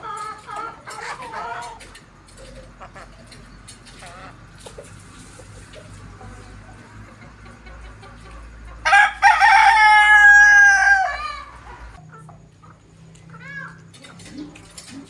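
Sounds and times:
rooster crowing: 8.8 - 12.0.

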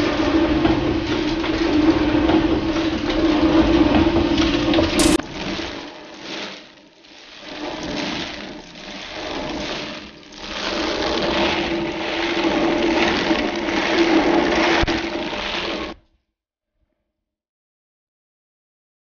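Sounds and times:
meal pouring down wooden chute: 0.0 - 16.0
short click: 5.0 - 5.2
millstones grinding with hum: 7.3 - 16.0.

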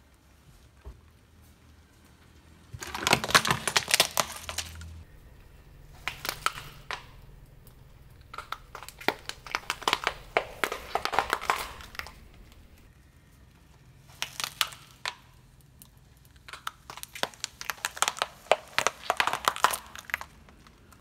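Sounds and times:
tyre crushing eggplants: 2.8 - 12.9, 14.1 - 15.2, 16.4 - 20.9
tyre crushing plastic wrapper: 2.8 - 12.9, 14.1 - 15.4, 16.1 - 21.0.

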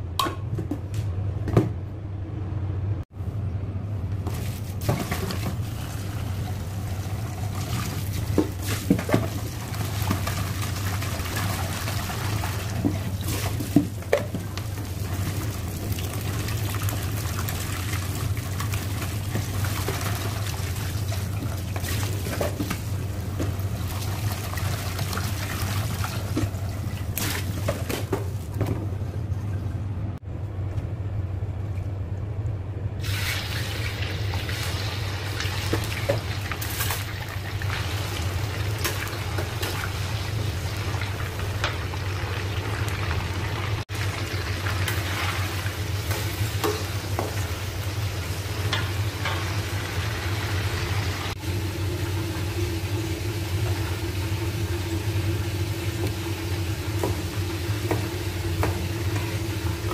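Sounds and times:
steady low hum: 0.0 - 42.3
chicken frying in oil: 4.8 - 28.2, 33.0 - 59.9.

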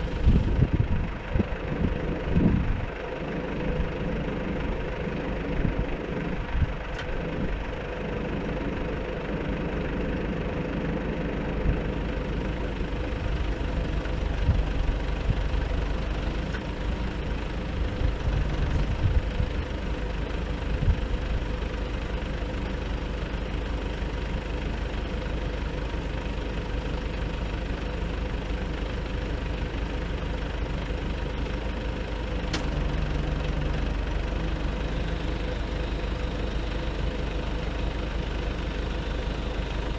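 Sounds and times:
truck engine running: 0.0 - 39.9
hydraulic hum: 12.5 - 21.0, 31.3 - 39.9
low bumps: 17.8 - 19.6.

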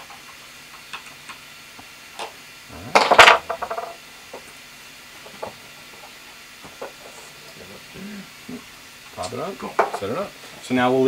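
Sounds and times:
tools clattering and rattling: 3.0 - 4.0.

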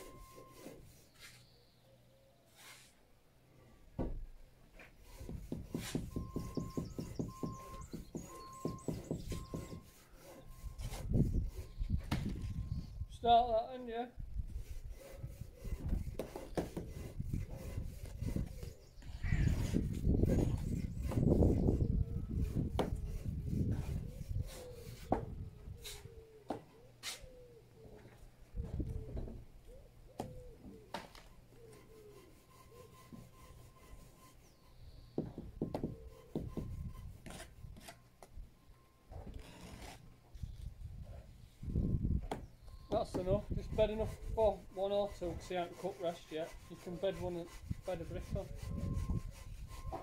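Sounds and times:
trowels scraping mortar: 5.1 - 11.8, 43.1 - 50.0.

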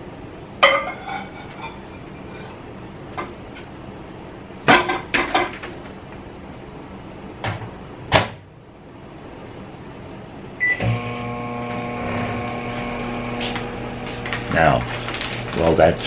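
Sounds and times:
microwave humming: 0.0 - 16.0.

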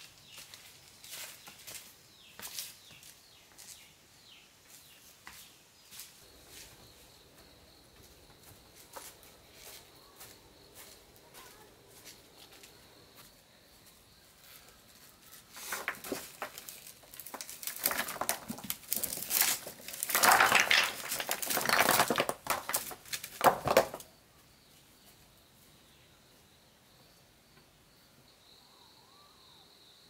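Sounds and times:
crinkling handling noise: 14.4 - 24.1.

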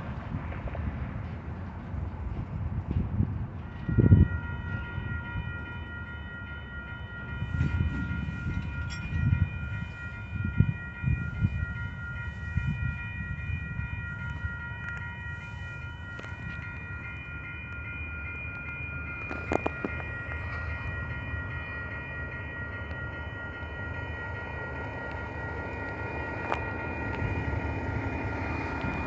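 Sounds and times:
wind rumbling on microphone: 0.0 - 5.6, 7.3 - 17.4
railroad crossing warning bell: 1.2 - 29.0.

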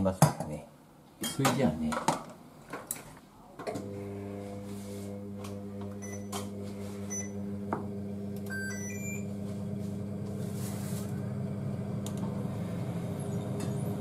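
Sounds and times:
low electrical hum: 0.0 - 14.0
cooktop control panel beeps: 6.0 - 7.5, 8.4 - 9.4.

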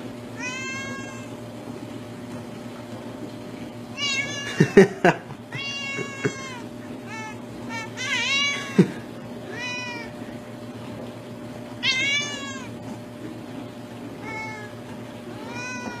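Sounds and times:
cat meowing: 0.4 - 1.3, 4.0 - 4.6, 5.5 - 8.8, 9.5 - 10.2, 11.8 - 12.8, 14.2 - 16.0.

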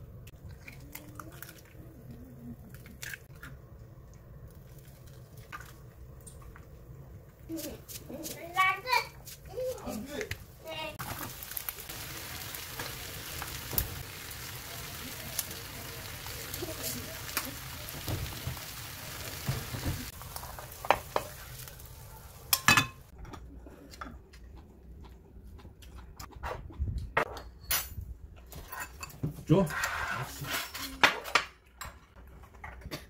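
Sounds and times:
food sizzling in a pan: 10.6 - 23.1
tableware clinking: 22.5 - 23.0.

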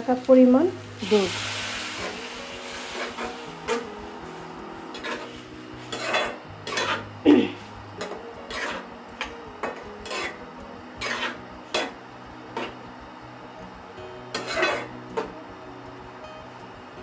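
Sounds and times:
metal spatula scraping in wok: 1.0 - 7.7, 8.5 - 8.9, 10.0 - 10.4, 11.0 - 12.0, 14.3 - 15.0.

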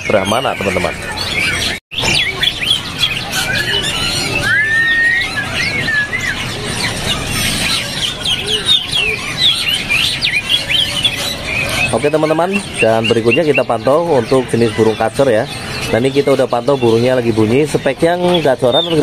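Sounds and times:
songbirds chirping and whistling: 0.0 - 19.0
bird whistled phrase: 1.4 - 13.8.

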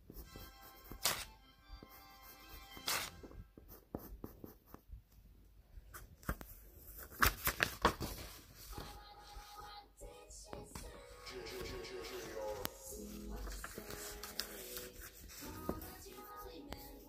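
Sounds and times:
pencil scratching on paper: 0.0 - 4.8, 11.4 - 17.0
paper rustling: 0.9 - 1.3, 2.8 - 3.4, 6.0 - 9.6, 11.4 - 17.0.

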